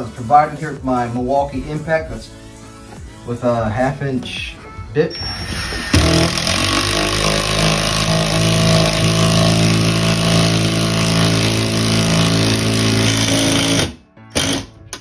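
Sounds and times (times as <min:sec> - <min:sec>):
impact driver running: 0:05.2 - 0:14.7.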